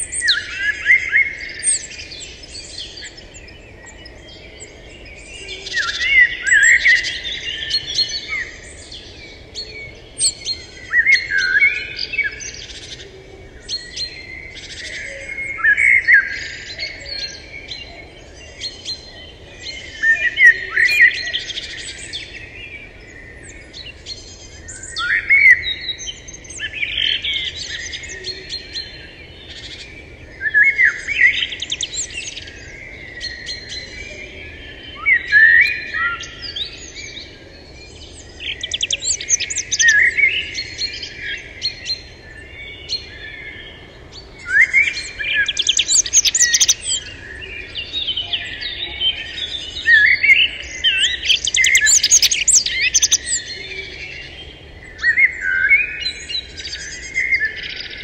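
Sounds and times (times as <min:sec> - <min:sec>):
songbirds singing: 0:00.0 - 0:58.0
bird chirps: 0:13.6 - 0:58.0.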